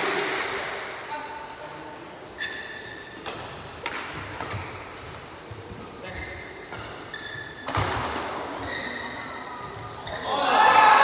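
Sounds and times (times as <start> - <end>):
shoes squeaking on court: 2.3 - 10.2
racket striking shuttlecock: 3.2 - 5.2.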